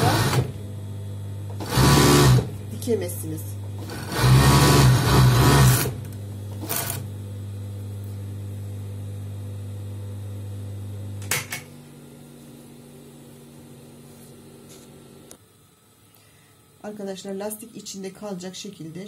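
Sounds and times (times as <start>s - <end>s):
overlock machine stitching: 0.0s - 0.6s, 1.5s - 2.5s, 3.8s - 7.1s.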